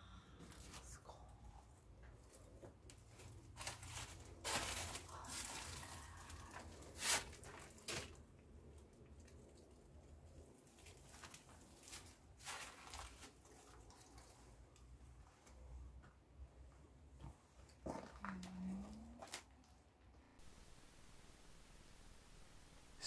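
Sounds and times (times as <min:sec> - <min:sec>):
clothing rustling: 0:02.2 - 0:08.2, 0:10.7 - 0:14.8.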